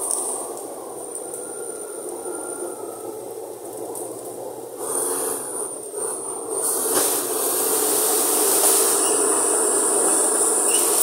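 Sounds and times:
bulldozer diesel engine: 4.8 - 11.0
high whine: 7.2 - 11.0.

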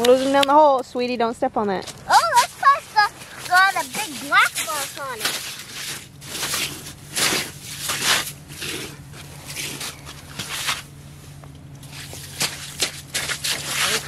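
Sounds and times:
fish flopping on snow: 2.1 - 14.0
boots shuffling on snow: 2.3 - 14.0.

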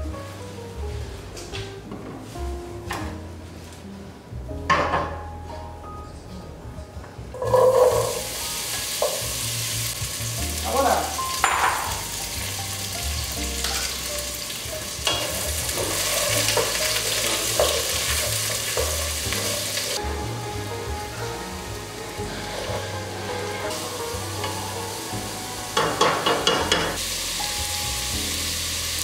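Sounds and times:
vegetables sizzling in pot: 7.5 - 29.0.

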